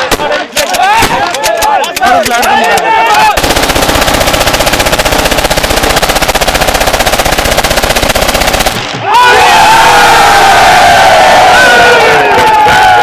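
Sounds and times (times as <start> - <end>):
crowd shouting and cheering: 0.0 - 3.4, 8.9 - 13.0
automatic gunfire burst: 3.4 - 8.9.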